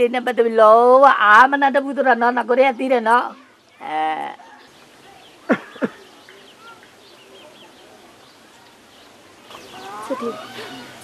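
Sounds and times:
faint birds chirping: 0:00.0 - 0:11.0
loud falling cries: 0:09.6 - 0:11.0.

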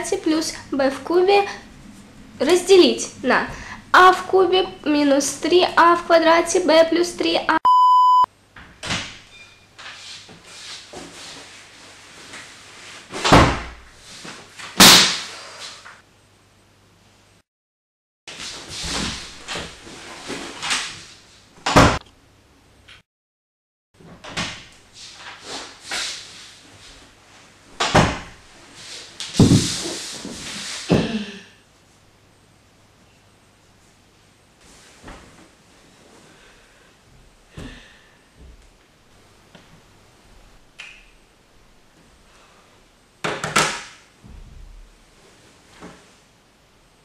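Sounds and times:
glass-paned door opening and shutting: 0:08.6 - 0:09.8, 0:24.0 - 0:24.7, 0:27.8 - 0:28.4.

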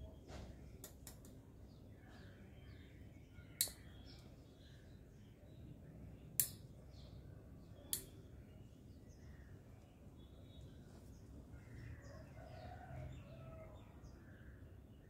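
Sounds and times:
low background noise: 0:00.0 - 0:15.0
sharp short clicks: 0:03.6 - 0:04.2, 0:06.4 - 0:06.7.

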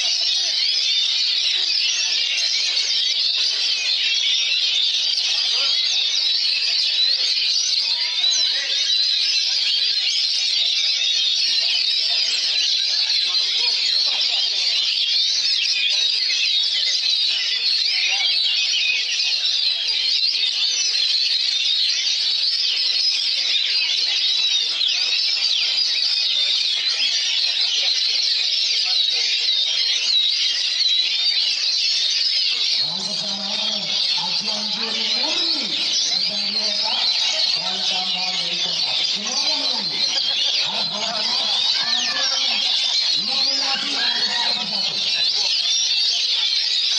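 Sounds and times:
bird singing rapid whistles: 0:29.4 - 0:46.9.

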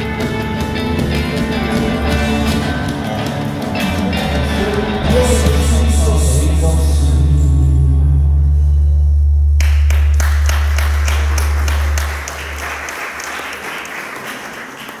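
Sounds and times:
audience applause: 0:00.0 - 0:05.9, 0:09.6 - 0:15.0
band's held bass note: 0:00.0 - 0:13.1.

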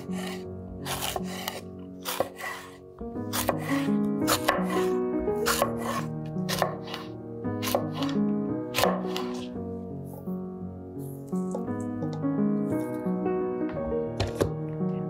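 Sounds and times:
knife slicing on cutting board: 0:00.0 - 0:09.5
background music: 0:00.0 - 0:15.0.

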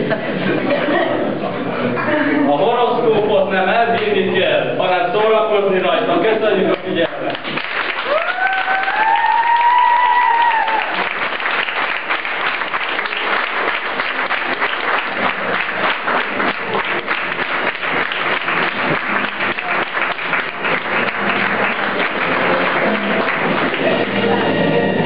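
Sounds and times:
audience applauding: 0:06.7 - 0:25.0
person cheering: 0:08.0 - 0:11.0.

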